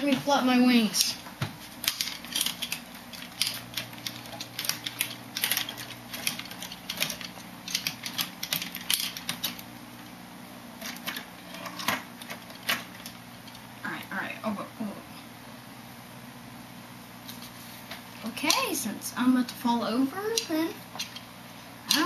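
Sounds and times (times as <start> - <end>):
steady low hum: 0.0 - 22.0
plastic parts clicking and rattling: 1.8 - 9.7, 10.8 - 13.6, 20.2 - 21.3.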